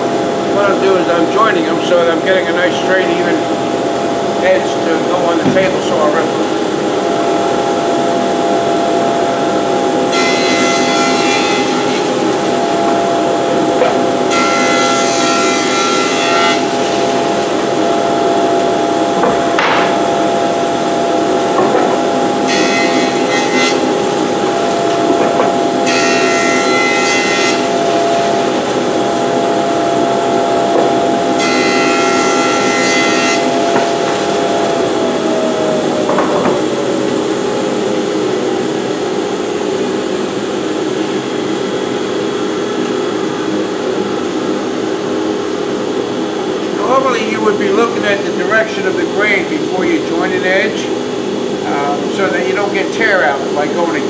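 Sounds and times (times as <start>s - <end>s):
jointer cutting boards: 0.0s - 45.7s
dust collector humming: 0.0s - 54.0s
motor winding down whine: 6.4s - 43.8s.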